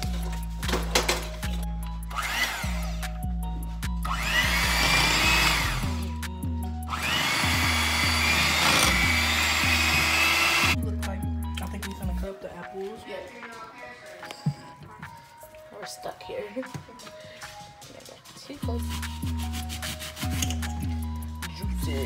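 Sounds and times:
background music with bass line: 0:00.0 - 0:15.6, 0:18.6 - 0:22.0
electric hand mixer whining: 0:02.1 - 0:03.0, 0:04.1 - 0:06.1, 0:06.9 - 0:10.8.

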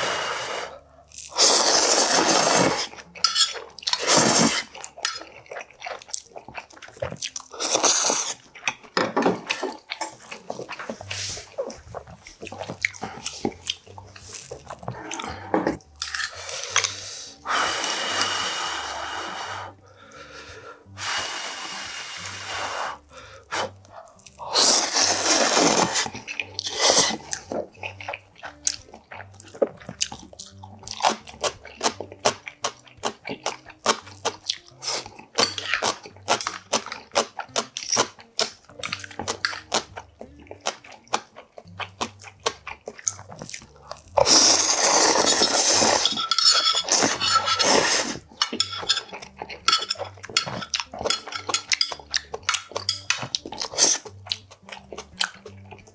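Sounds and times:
person slurping noodles: 0:00.0 - 0:03.0, 0:03.9 - 0:04.8, 0:07.5 - 0:08.4, 0:14.4 - 0:23.8, 0:24.4 - 0:27.6, 0:44.2 - 0:46.1, 0:46.8 - 0:48.3
chewing: 0:01.0 - 0:17.4, 0:23.2 - 0:55.9
chopsticks clinking on bowl: 0:03.2 - 0:04.1, 0:45.3 - 0:54.0.

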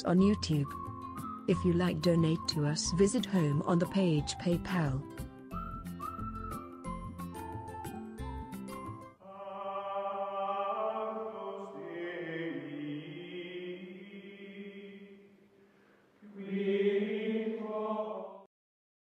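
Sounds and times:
choir-like chant music: 0:09.2 - 0:15.4, 0:16.2 - 0:18.5.

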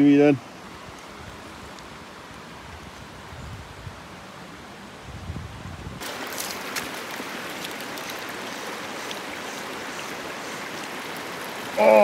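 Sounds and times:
stream rushing over rocks: 0:05.8 - 0:12.0.

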